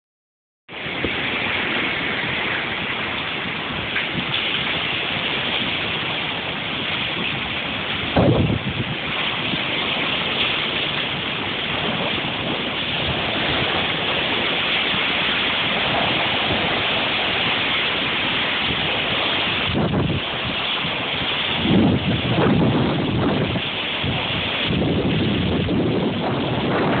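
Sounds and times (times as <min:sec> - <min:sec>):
wind and rain rushing: 0:00.7 - 0:27.0
wind gust buffeting microphone: 0:00.7 - 0:27.0.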